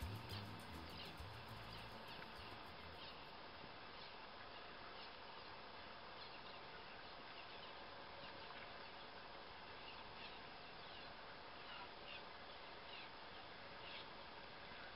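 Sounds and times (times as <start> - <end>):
faint outdoor hiss: 0.0 - 14.9.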